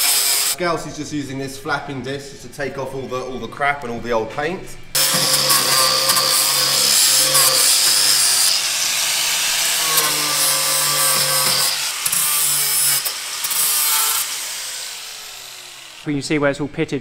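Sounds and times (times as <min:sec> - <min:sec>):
angle grinder grinding metal: 0:00.0 - 0:00.6, 0:05.0 - 0:16.1.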